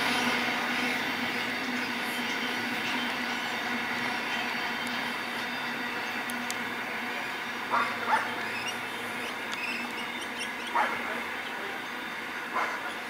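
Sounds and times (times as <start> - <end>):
distant freight train rumble: 0.0 - 13.0
dog barking: 7.7 - 8.3, 10.7 - 11.1, 12.5 - 12.9.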